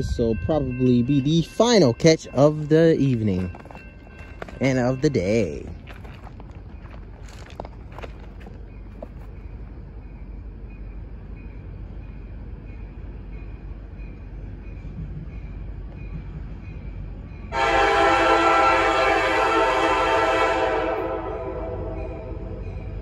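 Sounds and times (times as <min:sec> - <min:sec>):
freight train rumble: 0:00.0 - 0:23.0
locomotive horn blast: 0:17.5 - 0:22.5.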